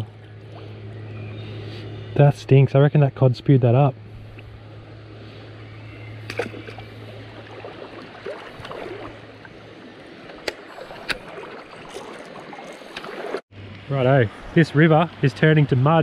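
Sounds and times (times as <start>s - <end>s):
river water sloshing: 4.0s - 13.5s.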